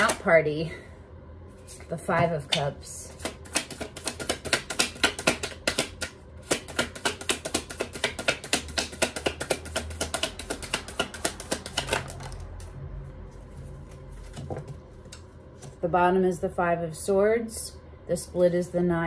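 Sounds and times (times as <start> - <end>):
cards being shuffled: 3.1 - 12.7.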